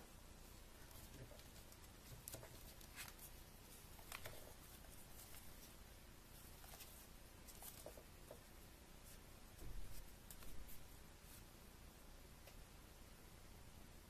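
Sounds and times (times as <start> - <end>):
paper rustling and crinkling: 0.8 - 5.8, 6.4 - 8.1.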